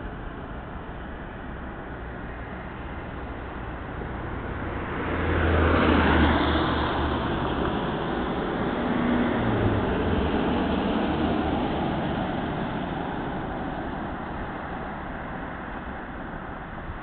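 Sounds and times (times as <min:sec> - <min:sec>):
tyres hissing on wet road: 0:04.4 - 0:16.6.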